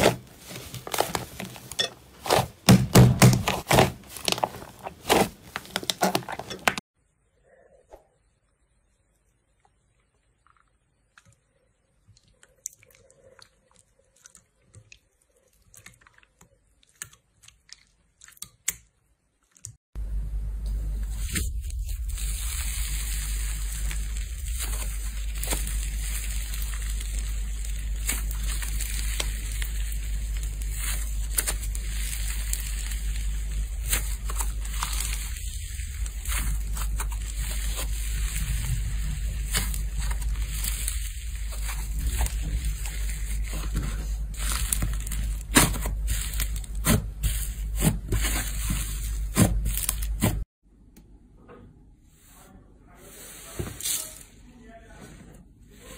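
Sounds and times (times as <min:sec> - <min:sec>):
slime crackling: 0:00.0 - 0:06.6, 0:21.1 - 0:50.4
wet squishes of slime: 0:02.2 - 0:06.8, 0:09.6 - 0:19.8, 0:21.2 - 0:50.4
steady hiss and low hum: 0:20.0 - 0:47.5.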